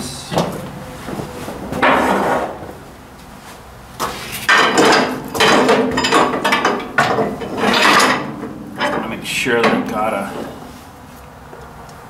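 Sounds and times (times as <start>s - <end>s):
metal clanking and scraping: 0.3s - 2.6s, 4.0s - 10.9s.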